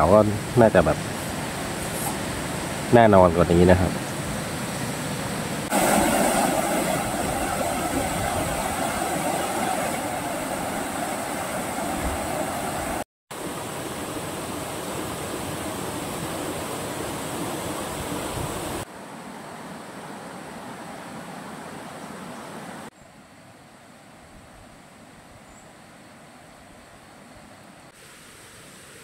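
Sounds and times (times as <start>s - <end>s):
river water rushing: 0.0s - 22.9s.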